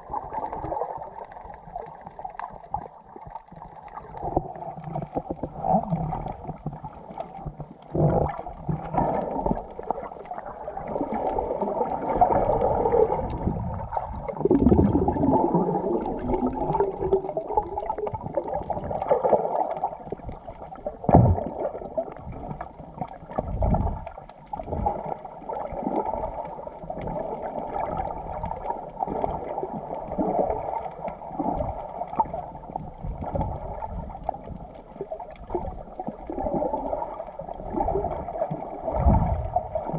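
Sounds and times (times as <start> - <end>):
underwater rushing and gurgling: 0.0 - 39.9
sharp knocks underwater: 21.0 - 22.6, 38.8 - 39.9.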